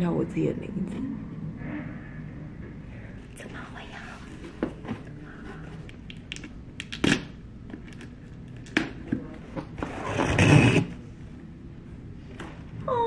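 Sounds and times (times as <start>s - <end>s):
cardboard scraping rustle: 9.7s - 11.0s.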